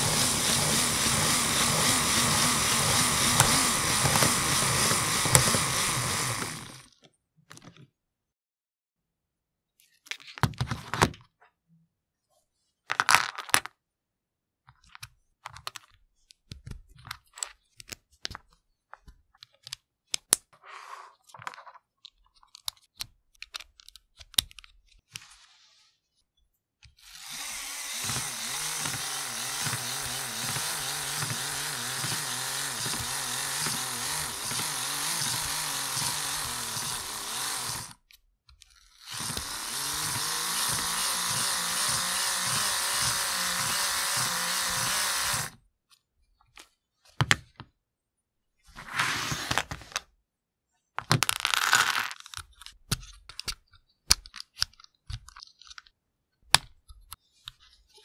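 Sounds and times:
small motor whirring: 0:00.0 - 0:06.9, 0:27.0 - 0:38.0, 0:38.8 - 0:45.6.

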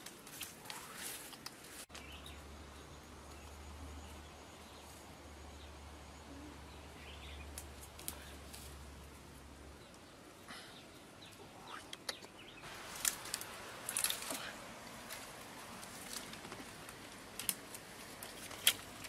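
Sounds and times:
footsteps through undergrowth: 0:00.0 - 0:02.2, 0:12.6 - 0:19.0.

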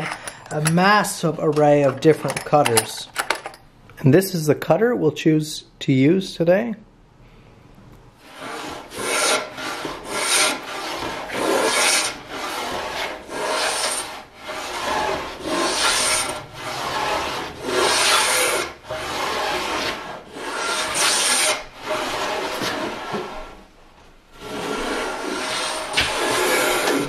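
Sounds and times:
plane shaving wood: 0:08.2 - 0:23.6, 0:24.4 - 0:27.0.

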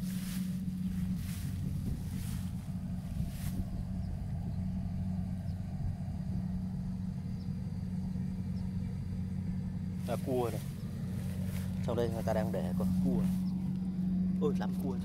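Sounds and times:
soft rustles: 0:00.0 - 0:04.0, 0:10.0 - 0:13.6
engine humming steadily: 0:00.0 - 0:15.0.

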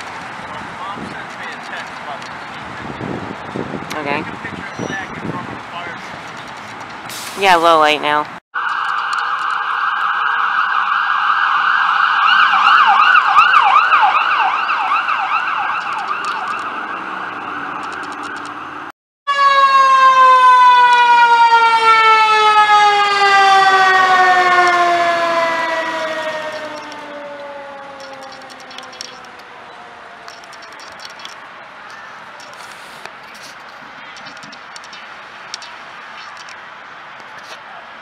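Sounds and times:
fire truck siren warbling: 0:08.6 - 0:32.6
mechanical siren winding down: 0:19.3 - 0:31.0.

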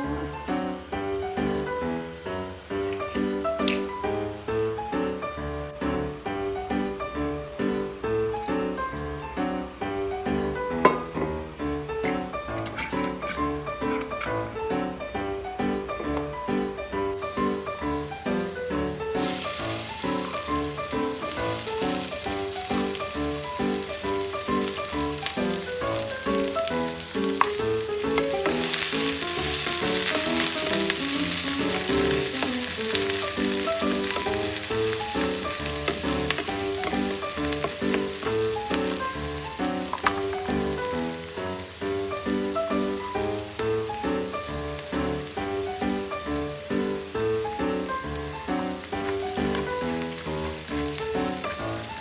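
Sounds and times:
spatula stirring in pan: 0:19.2 - 0:40.6
onion sizzling in oil: 0:19.2 - 0:52.0.

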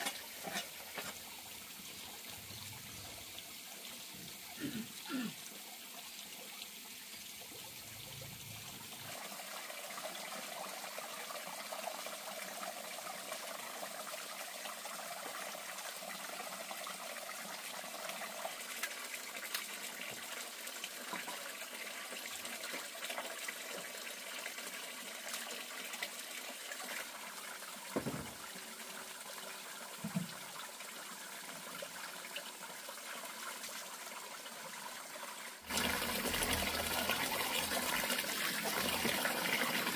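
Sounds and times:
water running: 0:00.0 - 0:12.0, 0:24.4 - 0:30.9, 0:35.7 - 0:39.9
dull knocks: 0:28.0 - 0:28.4.

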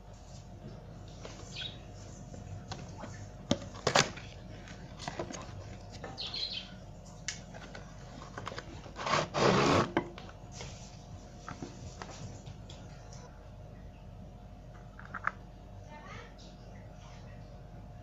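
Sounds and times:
cardboard box scraping rustle: 0:08.0 - 0:10.0.

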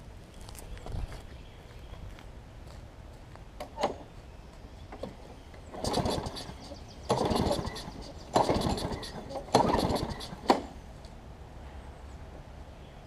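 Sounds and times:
lawn mower engine cranking: 0:04.9 - 0:10.8.

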